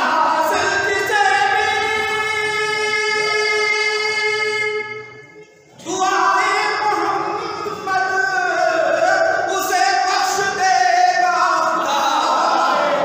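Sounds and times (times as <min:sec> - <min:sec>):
man singing into a microphone: 0:00.0 - 0:05.0.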